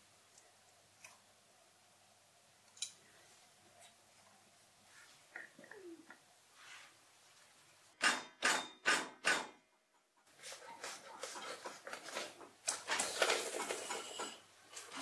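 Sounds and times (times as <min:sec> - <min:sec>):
rustling and scraping: 0:06.5 - 0:07.6, 0:10.2 - 0:15.0.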